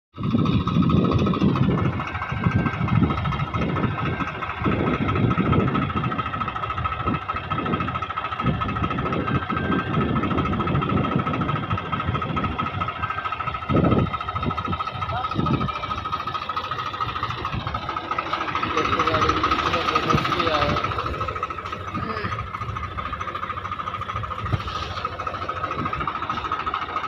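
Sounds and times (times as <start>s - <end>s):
tractor diesel engine chugging: 0.2s - 27.0s
steady high whine: 12.1s - 27.0s.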